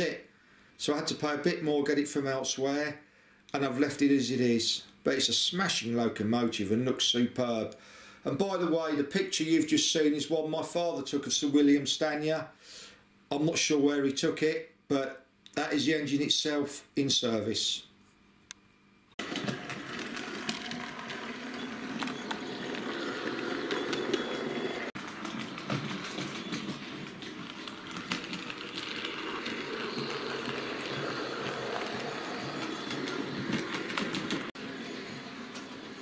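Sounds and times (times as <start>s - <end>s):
model train rolling: 19.2s - 36.0s
wheels clicking over rail joints: 19.2s - 36.0s.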